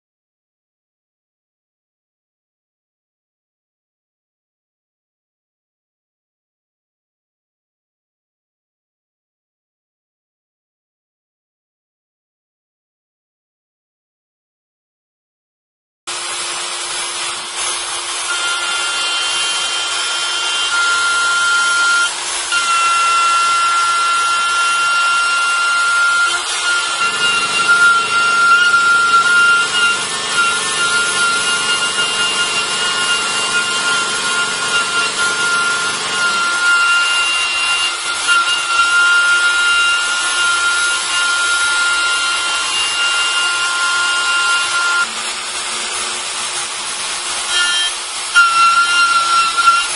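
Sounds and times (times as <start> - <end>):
cutter grinding through material: 16.1 - 49.9
router spindle high whine: 16.1 - 49.9.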